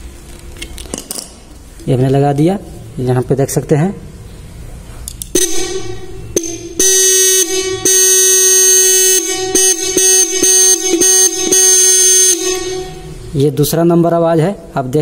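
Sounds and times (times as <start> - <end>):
electric horn blasts: 5.3 - 13.4.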